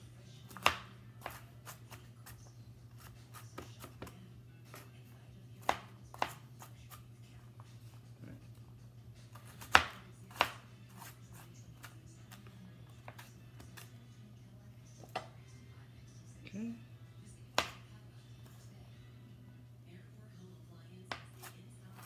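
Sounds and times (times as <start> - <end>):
steady low hum: 0.0 - 22.0
knife dicing on cutting board: 0.5 - 2.4, 5.6 - 7.0, 9.3 - 12.4, 21.1 - 22.0.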